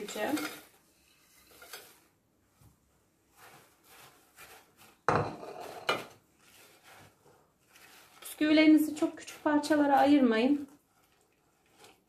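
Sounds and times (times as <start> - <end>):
biscuit pieces rustling into bowl: 0.0 - 12.0
spatula scraping glass bowl: 3.3 - 12.0.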